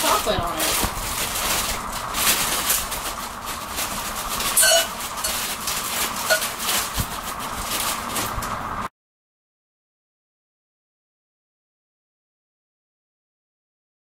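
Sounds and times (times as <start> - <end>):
plastic bag crinkling: 0.0 - 8.9
steady background hum: 0.0 - 8.9.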